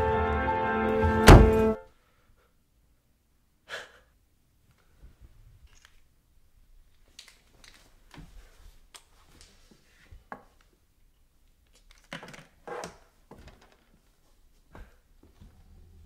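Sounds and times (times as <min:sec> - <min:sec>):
small objects clicking: 0:06.9 - 0:07.9, 0:11.6 - 0:12.5.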